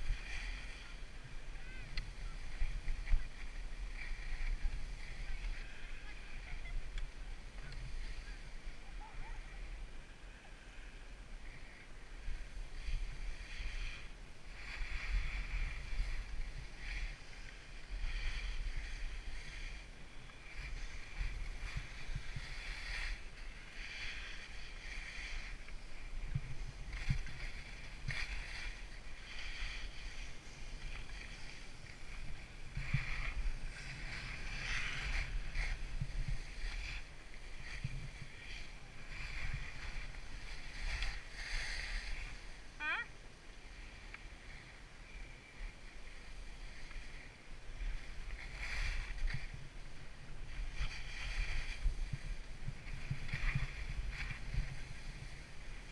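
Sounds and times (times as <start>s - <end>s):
skis scraping over snow: 0.0s - 55.9s
wind rumble on microphone: 0.0s - 55.9s.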